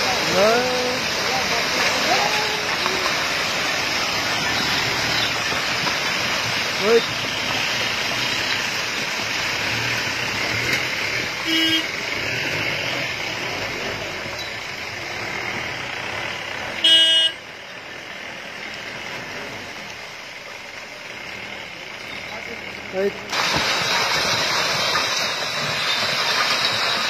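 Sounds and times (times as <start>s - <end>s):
rock and soil sliding: 0.0s - 11.4s, 23.3s - 27.0s
vehicle horn: 11.4s - 11.9s, 16.8s - 17.4s.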